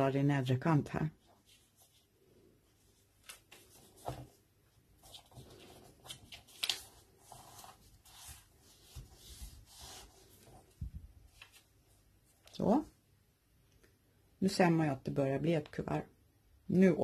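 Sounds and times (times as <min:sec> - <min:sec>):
paper rustling and folding: 0:01.2 - 0:12.4
paper crackle: 0:05.0 - 0:10.6.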